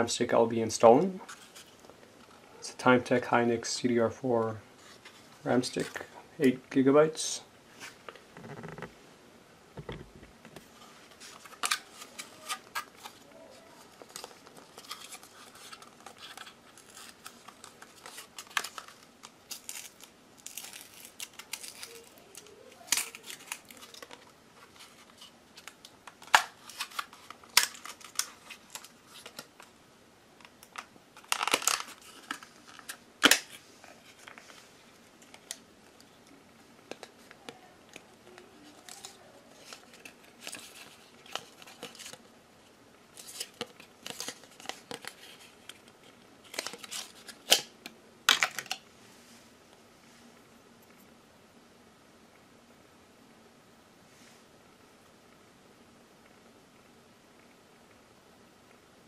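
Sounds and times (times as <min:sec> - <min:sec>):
plastic packaging crinkling and clicking: 0:11.2 - 0:29.7, 0:30.4 - 0:42.3, 0:43.1 - 0:48.9.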